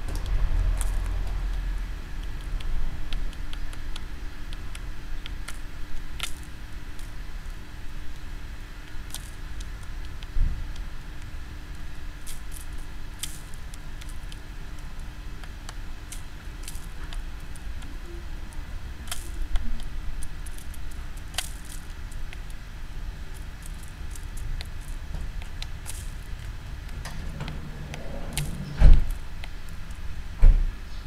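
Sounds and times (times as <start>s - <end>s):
low steady rumble: 0.0s - 31.0s
bird pecking seed clicks: 0.1s - 1.6s, 8.1s - 18.0s, 19.0s - 22.6s.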